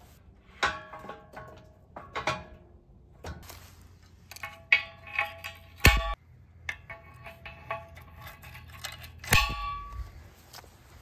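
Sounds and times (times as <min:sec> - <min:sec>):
metal clanks: 0:00.4 - 0:10.2.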